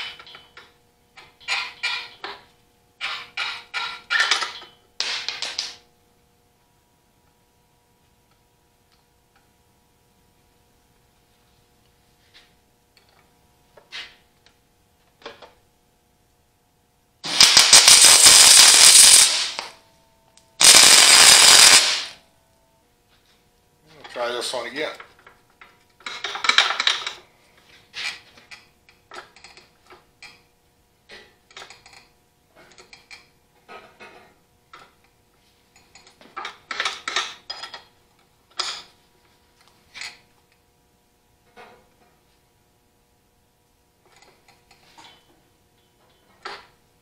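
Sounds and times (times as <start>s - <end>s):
welder arc crackling: 17.2s - 19.8s, 20.6s - 22.2s.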